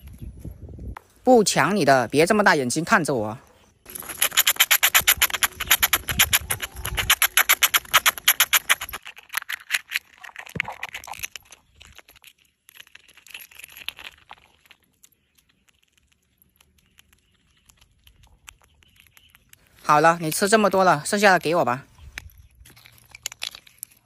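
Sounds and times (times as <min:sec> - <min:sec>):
shell cracking and crunching: 0:03.9 - 0:20.9, 0:22.0 - 0:24.0
squirrel gnawing nut shell: 0:03.9 - 0:21.2, 0:22.0 - 0:24.0.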